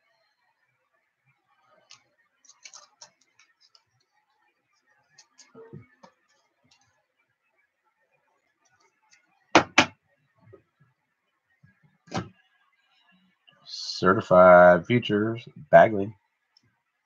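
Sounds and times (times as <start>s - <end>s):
trading cards clicking and tapping: 1.8s - 3.9s.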